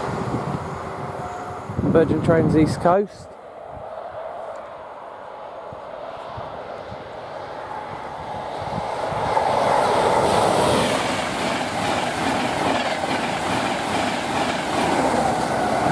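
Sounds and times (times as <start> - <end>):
diesel train passing at speed: 0.0 - 15.9
train wheels rumbling on rails: 8.0 - 15.9.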